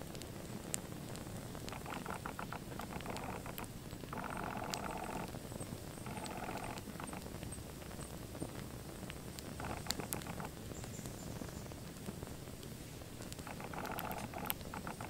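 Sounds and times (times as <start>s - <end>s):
small fire crackling: 0.0s - 15.0s
rapid chirping trill: 1.7s - 7.6s, 9.6s - 10.5s, 13.4s - 15.0s.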